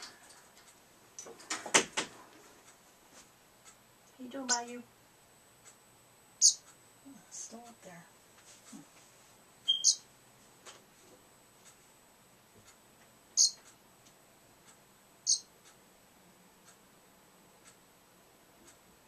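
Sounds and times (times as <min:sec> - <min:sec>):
bird high chirps: 0:06.4 - 0:06.7, 0:09.7 - 0:10.1, 0:13.4 - 0:13.6, 0:15.2 - 0:15.5.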